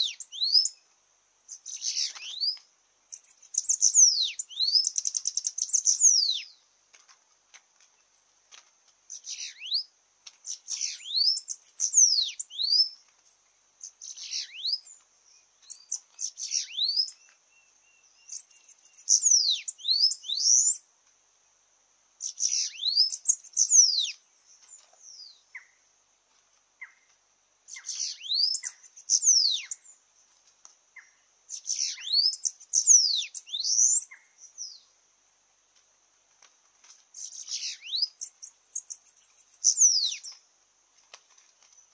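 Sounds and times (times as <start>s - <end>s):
birds singing high thin notes: 0.0s - 6.8s, 9.1s - 20.9s, 22.2s - 25.8s, 26.8s - 30.4s, 31.0s - 35.0s, 36.9s - 40.5s.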